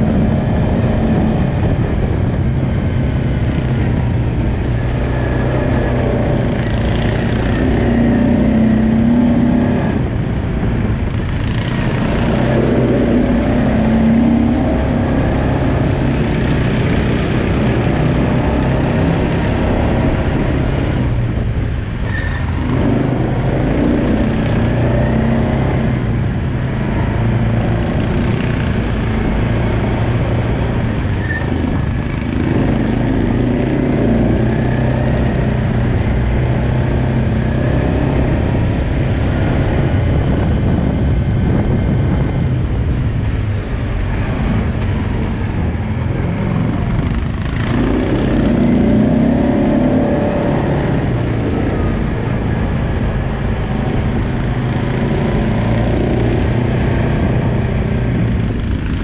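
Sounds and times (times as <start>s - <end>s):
quad bike engine running: 0.0s - 59.0s.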